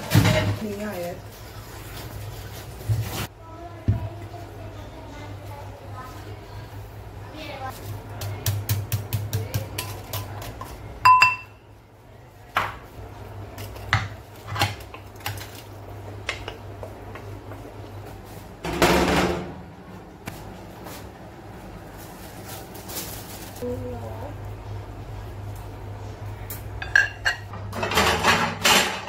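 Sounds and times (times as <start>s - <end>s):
wooden spoon tapping ceramic bowl: 11.1s - 11.5s.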